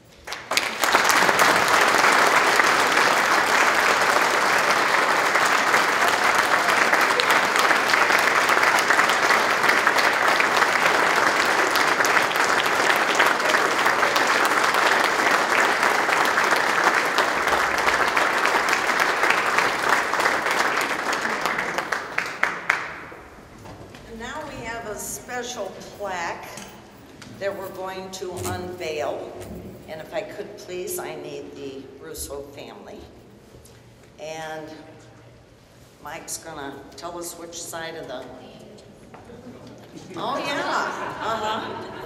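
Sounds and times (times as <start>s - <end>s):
crowd applauding: 0.0s - 23.3s.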